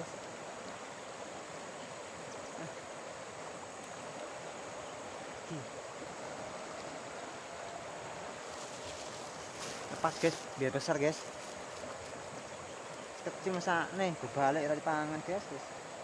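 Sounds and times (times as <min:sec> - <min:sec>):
river rushing: 0:00.0 - 0:16.0.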